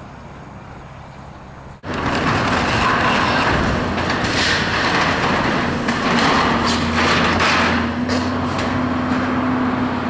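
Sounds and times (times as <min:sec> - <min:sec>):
excavator engine hum: 0:00.0 - 0:10.0
sharp metallic knocks: 0:01.8 - 0:09.4
sheet metal crunching and scraping: 0:01.8 - 0:09.8.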